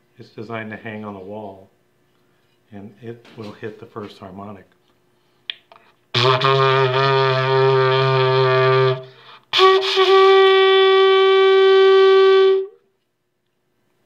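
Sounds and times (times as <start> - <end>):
ceramic horn blown: 6.1 - 13.0
breath: 9.1 - 9.5.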